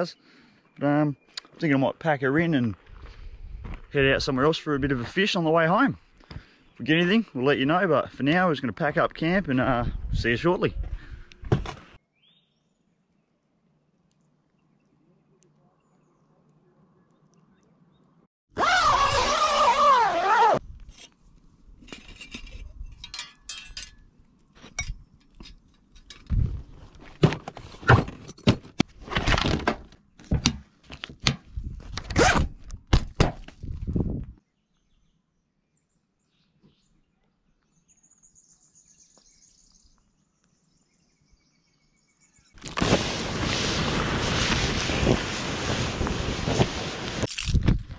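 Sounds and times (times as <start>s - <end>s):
camping gear thunks and rustles: 10.8s - 12.0s, 24.5s - 34.2s
faint bird chirping: 12.0s - 18.3s, 34.4s - 42.6s
zips being pulled: 18.5s - 20.6s, 32.0s - 32.6s.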